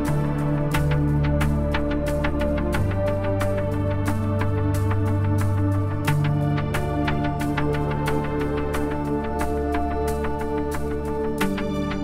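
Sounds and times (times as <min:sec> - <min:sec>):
background music with held chords: 0:00.0 - 0:12.0.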